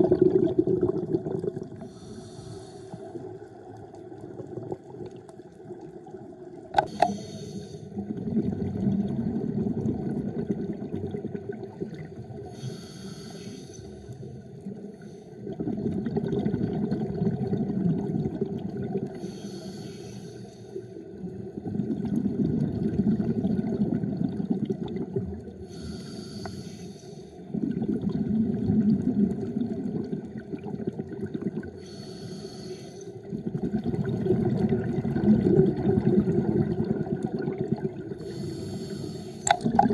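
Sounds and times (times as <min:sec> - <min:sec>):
bubbling exhaled air: 0:00.0 - 0:05.2, 0:06.8 - 0:13.6, 0:15.4 - 0:19.9, 0:27.5 - 0:39.9
regulator inhale hiss: 0:01.8 - 0:03.3, 0:06.8 - 0:08.0, 0:12.5 - 0:15.4, 0:19.2 - 0:21.0, 0:25.6 - 0:27.4, 0:31.8 - 0:33.3, 0:38.2 - 0:39.5.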